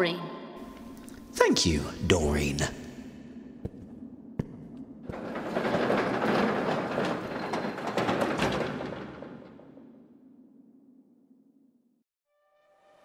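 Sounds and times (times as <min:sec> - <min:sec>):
scattered knocks: 0:03.6 - 0:10.0.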